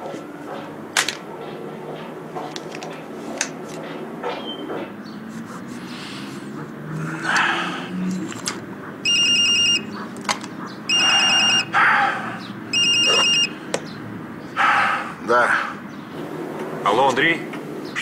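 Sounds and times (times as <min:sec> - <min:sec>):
phone ringtone pulsing: 0:09.0 - 0:10.0, 0:10.9 - 0:11.8, 0:12.7 - 0:13.6.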